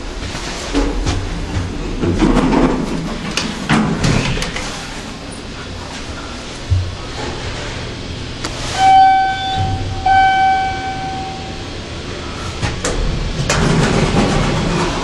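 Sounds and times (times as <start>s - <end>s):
elevator doors rumbling open: 0.0s - 15.0s
elevator chime: 8.8s - 11.8s.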